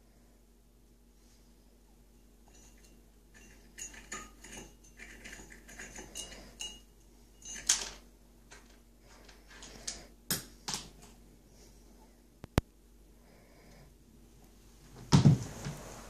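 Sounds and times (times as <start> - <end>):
toy figures rattling in a mug: 2.7 - 6.8.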